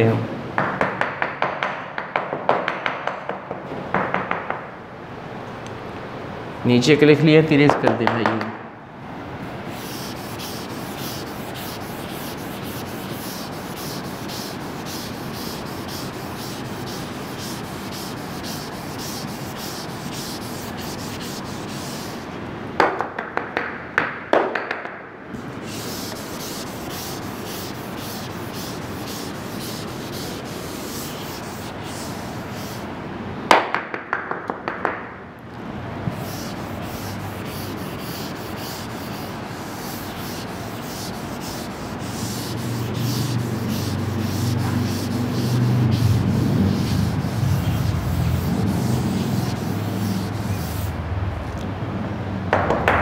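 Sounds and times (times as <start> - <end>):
sharp knocks: 0.6 - 4.6
duster rubbing on board: 9.6 - 22.4, 25.4 - 32.9, 36.1 - 51.0.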